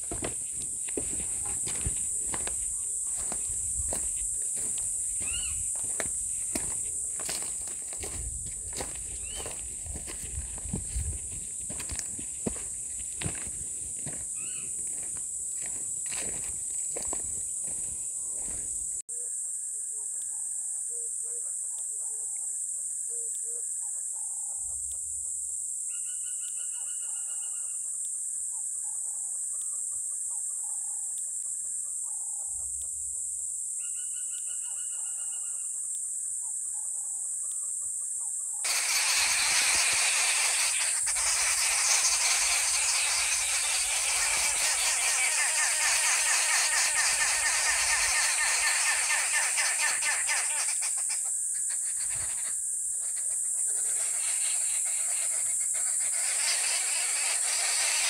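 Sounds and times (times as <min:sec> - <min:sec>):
birds calling: 0:00.0 - 0:19.0, 0:38.5 - 0:58.0
high insect drone: 0:00.0 - 0:19.0, 0:38.6 - 0:58.0
trilling bird calls: 0:00.0 - 0:25.1, 0:25.9 - 0:33.1, 0:33.8 - 0:58.0.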